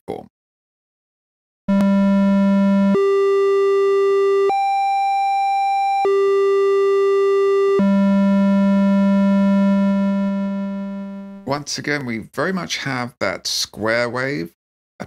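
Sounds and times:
square-wave synth tone: 1.7 - 11.4.

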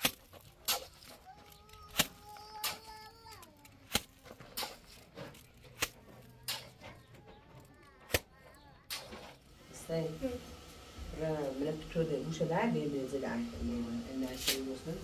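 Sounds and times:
hand tool scraping wet cement: 0.0 - 1.2, 3.8 - 6.8.

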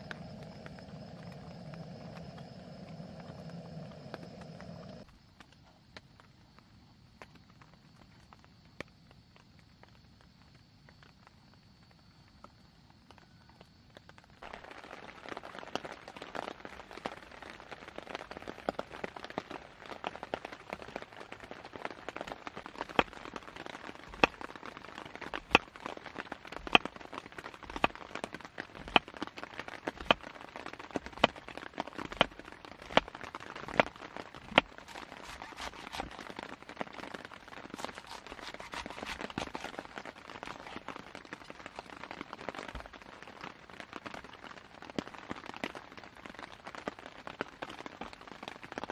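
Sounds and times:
knife shredding cabbage: 27.6 - 28.0, 33.7 - 36.4, 37.7 - 40.9
knife slicing cucumber on board: 34.5 - 36.2, 37.8 - 40.8.

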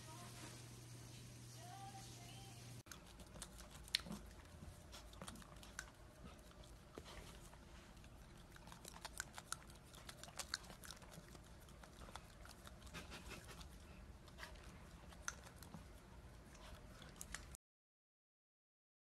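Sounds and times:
teeth clicks and crunches: 2.9 - 7.0, 8.0 - 13.8, 14.4 - 17.6
puppy chewing and biting: 2.9 - 17.6.

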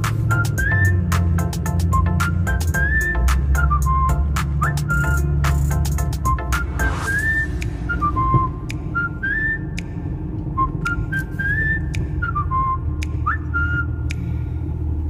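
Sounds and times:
whistled melody music: 0.0 - 14.3
diesel pickup engine rumble: 0.0 - 15.0
road noise: 0.0 - 15.0
sharp snap-like clicks: 14.0 - 14.4.

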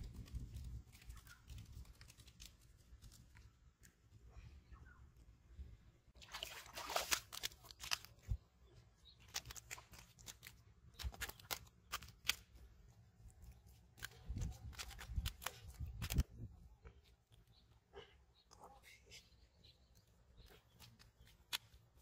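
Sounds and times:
fish flopping on wet mud: 6.2 - 8.4, 9.2 - 12.4.

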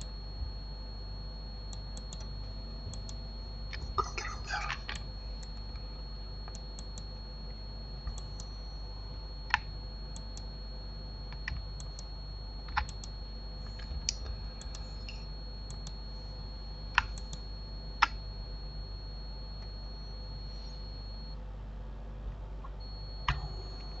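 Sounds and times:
low electrical hum: 0.0 - 24.0
keyboard and mouse clicks: 12.7 - 16.0, 17.0 - 17.4.

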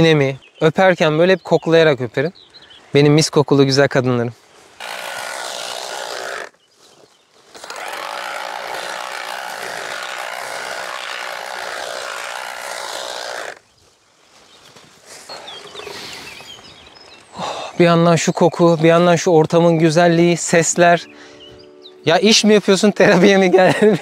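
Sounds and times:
harvesting machine motor whine: 7.6 - 13.6.

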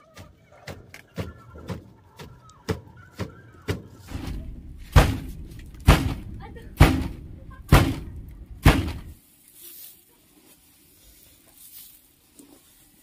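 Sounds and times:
pestle thudding in wooden mortar: 4.1 - 9.2.

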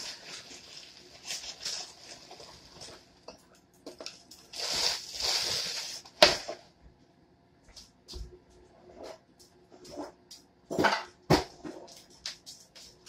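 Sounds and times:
plastic bag of ice crinkling: 0.0 - 3.2, 4.0 - 6.3.

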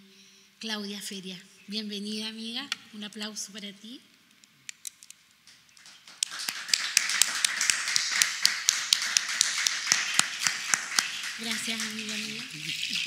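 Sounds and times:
hands clapping: 5.5 - 13.0.

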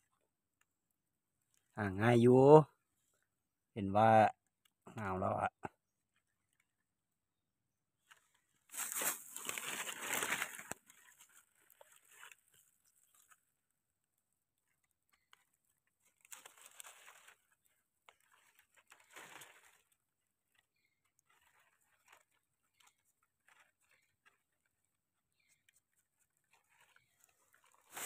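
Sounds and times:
soft rustling and scraping: 8.0 - 13.4, 14.7 - 28.0
dry leaves rustling and crackling: 8.7 - 13.3, 16.0 - 20.0, 20.7 - 24.6, 26.5 - 28.0.

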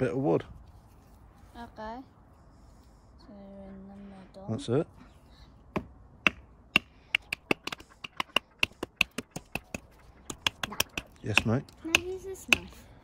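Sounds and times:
wooden baton tapping knife spine: 6.8 - 12.8.

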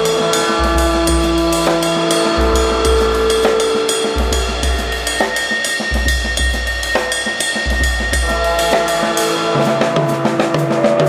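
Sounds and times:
cymbals: 0.0 - 11.0
drum kit beat: 0.0 - 11.0
held notes: 0.0 - 11.0.

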